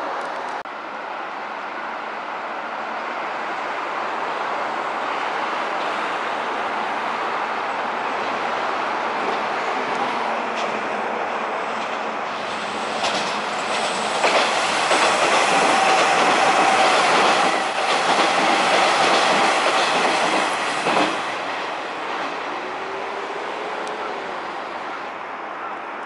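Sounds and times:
electric train passing: 0:00.0 - 0:25.6
wheels clacking over rail joints: 0:12.9 - 0:22.4.

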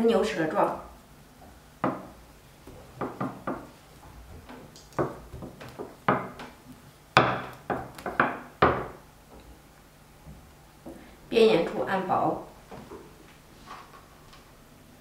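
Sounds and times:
rolling pin knocking on wooden board: 0:01.8 - 0:02.1, 0:02.7 - 0:03.7, 0:04.4 - 0:06.6, 0:07.2 - 0:09.0.

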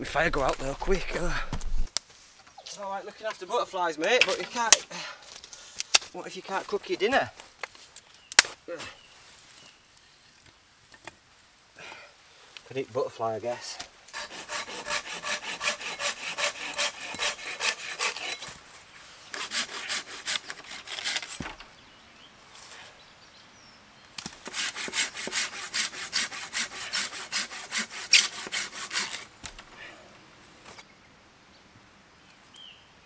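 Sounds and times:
hand saw cutting branch: 0:14.1 - 0:18.6, 0:19.3 - 0:21.6, 0:24.2 - 0:29.6.

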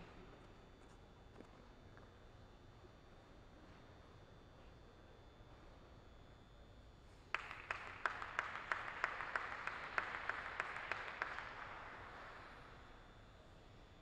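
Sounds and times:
audience applauding: 0:07.3 - 0:12.8
loud even claps: 0:07.3 - 0:13.0.

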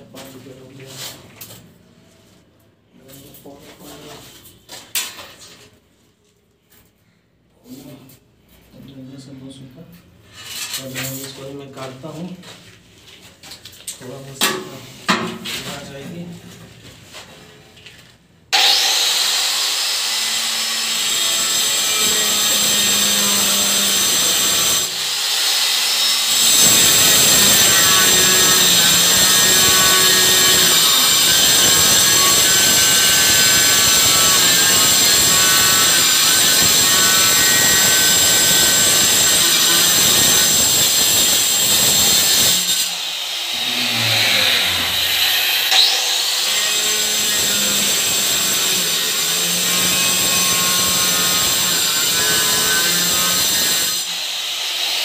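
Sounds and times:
electric tile cutter grinding: 0:18.5 - 0:55.0.

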